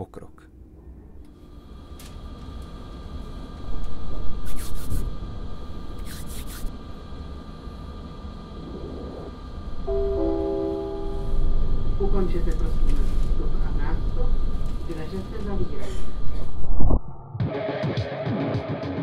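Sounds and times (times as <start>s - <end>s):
train low rumble: 0.0s - 16.9s
loud hissing bursts: 2.8s - 9.8s
station chime: 9.9s - 11.4s.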